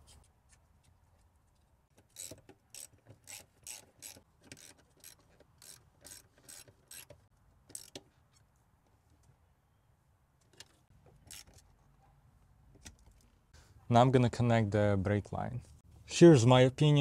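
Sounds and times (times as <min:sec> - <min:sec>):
socket ratchet clicking: 0:02.1 - 0:08.0.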